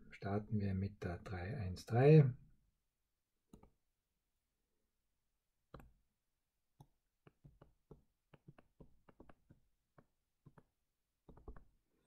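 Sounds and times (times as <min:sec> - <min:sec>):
stylus tapping on screen: 0:05.6 - 0:12.0.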